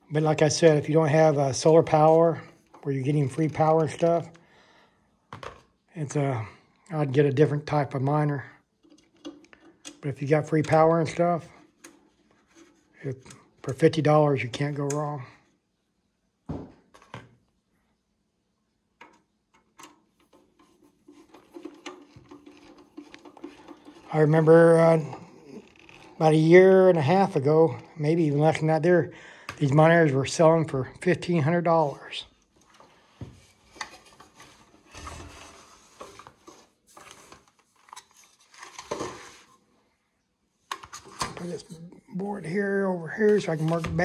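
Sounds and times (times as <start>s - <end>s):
rubbing and rustling: 10.7s - 13.6s, 19.6s - 26.3s, 31.8s - 39.7s.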